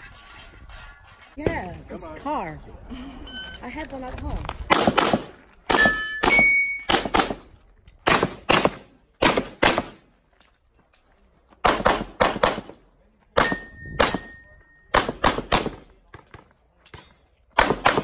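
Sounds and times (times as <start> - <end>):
pistol shots: 4.7 - 10.0, 11.6 - 12.8, 14.9 - 15.9, 17.6 - 18.0
metallic ring of steel targets: 5.7 - 6.9, 13.4 - 15.0.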